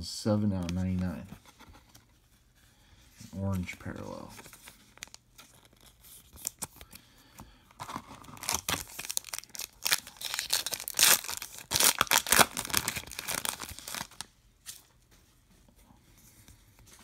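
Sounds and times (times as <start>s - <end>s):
wrapper crinkling and tearing: 4.3s - 7.0s, 7.8s - 14.3s.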